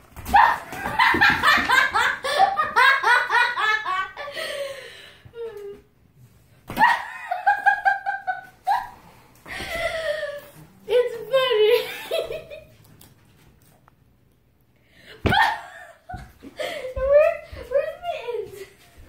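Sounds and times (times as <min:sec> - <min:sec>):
person laughing hard: 0:00.7 - 0:04.6.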